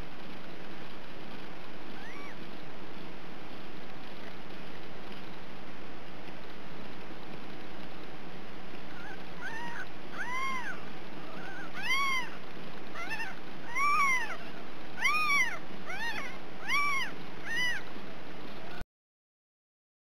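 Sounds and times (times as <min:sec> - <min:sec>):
kittens mewing: 0:02.0 - 0:02.4, 0:08.9 - 0:17.9.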